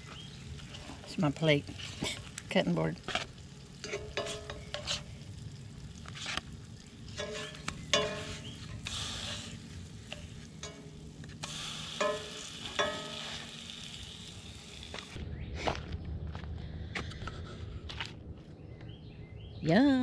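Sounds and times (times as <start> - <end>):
donuts sizzling in butter: 0.0 - 15.2
spatula scraping pan: 3.8 - 5.2, 7.1 - 13.6.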